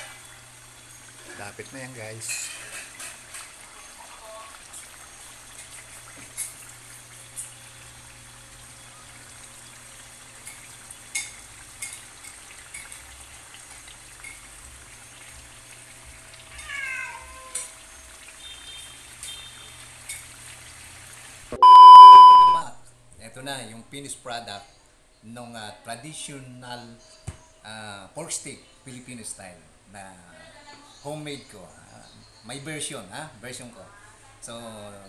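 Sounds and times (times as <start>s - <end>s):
meat sizzling in a wok: 0.0s - 21.6s
meow-like cry: 16.5s - 17.8s
loud electronic beep: 21.6s - 22.6s.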